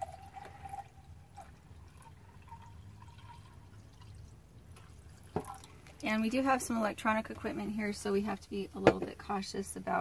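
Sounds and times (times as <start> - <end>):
tap water running into cup: 0.0 - 6.0.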